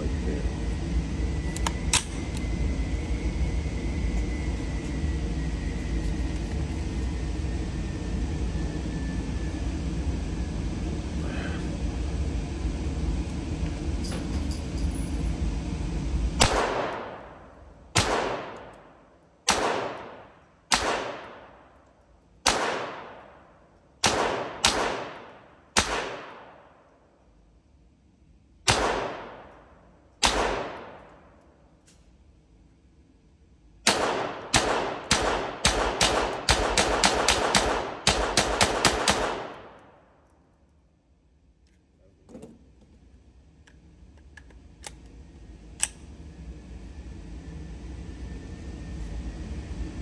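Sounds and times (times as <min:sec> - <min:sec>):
steady low noise: 0:00.0 - 0:50.0
rifle shots echoing indoors: 0:16.4 - 0:27.0, 0:28.6 - 0:31.4, 0:33.8 - 0:40.4.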